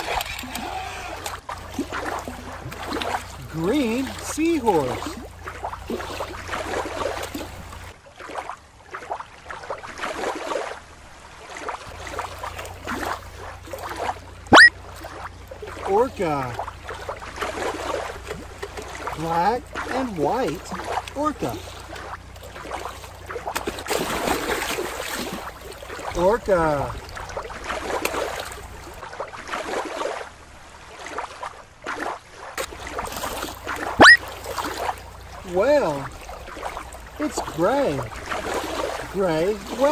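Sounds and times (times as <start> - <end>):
water splashing and sloshing: 0.0 - 39.9
sharply rising whistle: 14.5 - 14.7, 34.0 - 34.3.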